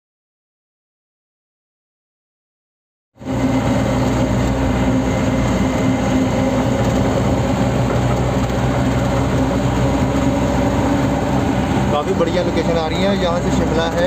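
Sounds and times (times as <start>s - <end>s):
car engine drone: 3.2s - 14.0s
tyre road noise: 3.2s - 14.0s.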